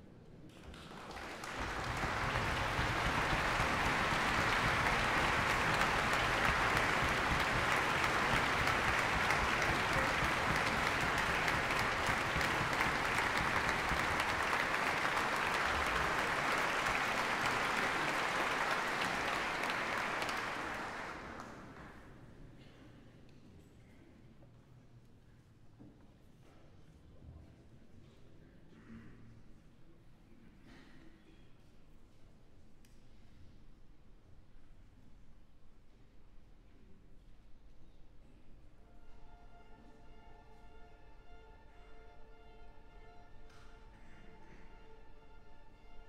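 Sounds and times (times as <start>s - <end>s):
audience applauding: 0.6s - 22.1s.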